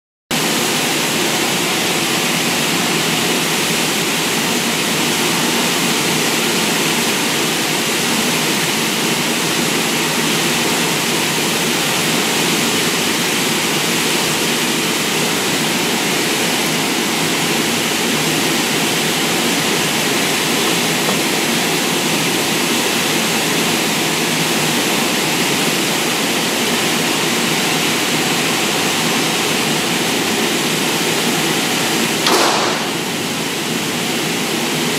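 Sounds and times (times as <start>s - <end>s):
ventilation air rushing: 10.4s - 34.3s.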